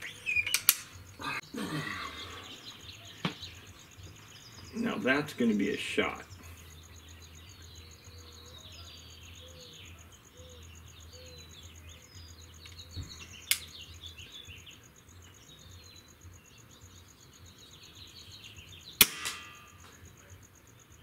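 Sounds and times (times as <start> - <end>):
birds chirping: 0.0 - 21.0
insect trilling: 0.0 - 21.0
sharp click: 0.4 - 1.0, 13.4 - 13.8, 19.0 - 20.0.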